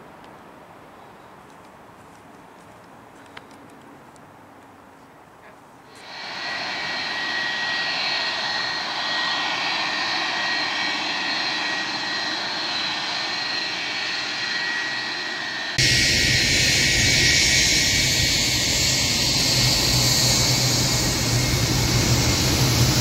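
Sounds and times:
jet engines with high whine: 5.9 - 23.0.

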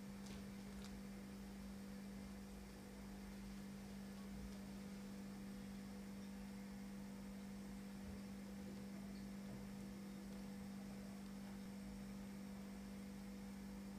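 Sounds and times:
low electrical hum: 0.0 - 13.9.

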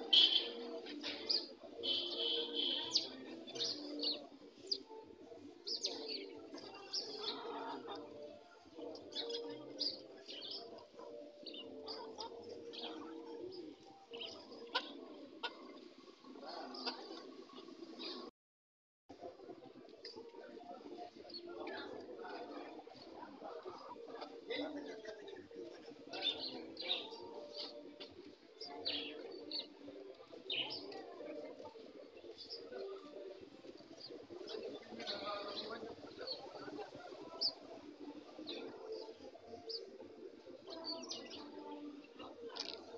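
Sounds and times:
hens calling: 0.0 - 4.0, 10.5 - 15.9
hens clucking: 14.2 - 16.0.

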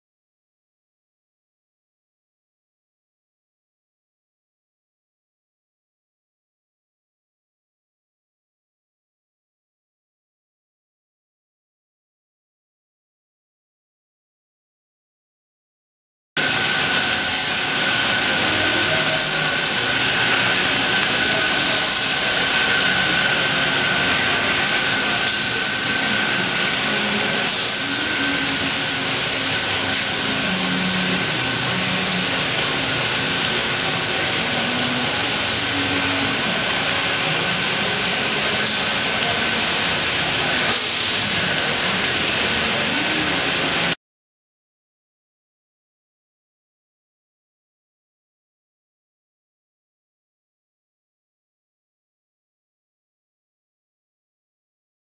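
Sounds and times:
high machine whine: 16.4 - 44.0
machinery hiss and hum: 16.4 - 44.0.

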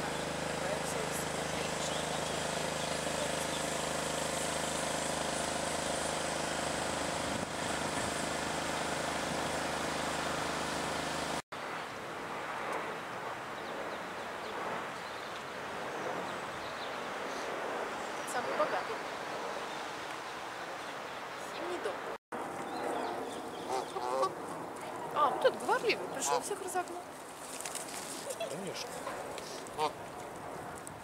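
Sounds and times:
motor engine droning: 0.0 - 11.4
open-air background noise: 0.0 - 31.0.

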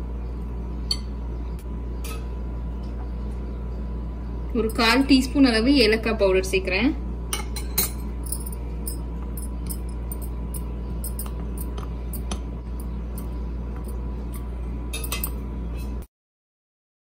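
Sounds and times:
steady low hum: 0.0 - 16.1
spoon clinking against glass: 7.4 - 11.8, 14.9 - 15.4.

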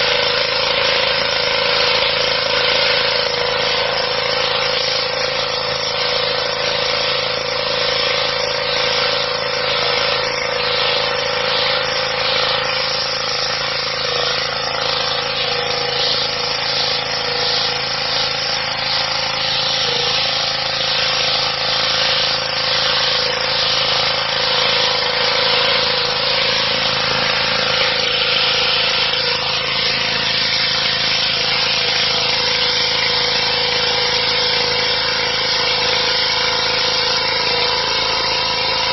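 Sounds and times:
pressure washer engine running: 0.0 - 38.9
water jet hissing on stone: 0.0 - 38.9.

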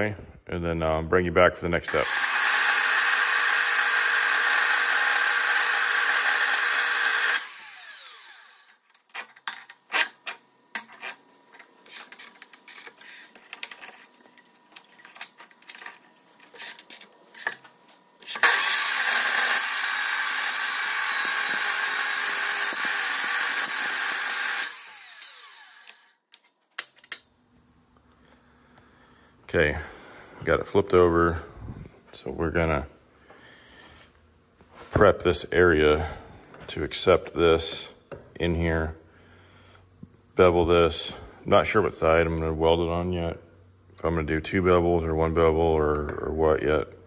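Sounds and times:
chop saw cutting metal: 1.9 - 8.8, 18.3 - 26.1
saw blade winding down: 1.9 - 8.8, 18.2 - 26.2.

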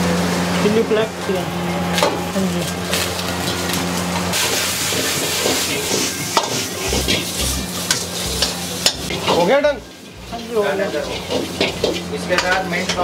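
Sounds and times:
food sizzling in a wok: 2.6 - 13.0
metal ladle clanking on wok: 4.4 - 9.5, 10.9 - 13.0.

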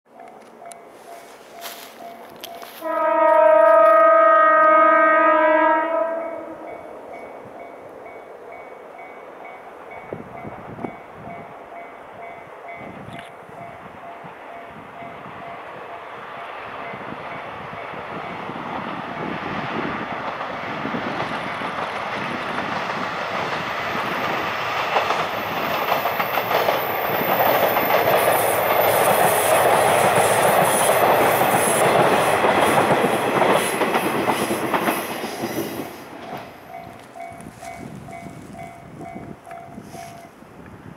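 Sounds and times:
level-crossing bell ringing: 0.1 - 2.8
diesel train passing: 0.1 - 40.9
train wheel clatter: 16.8 - 40.3.

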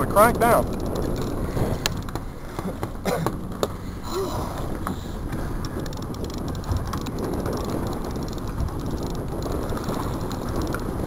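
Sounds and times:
low rumble: 0.0 - 11.0
fishing reel cranking: 4.9 - 11.0.

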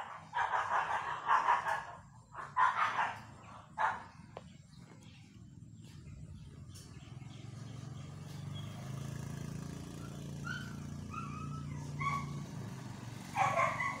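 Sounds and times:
vehicle engine running: 3.8 - 14.0.

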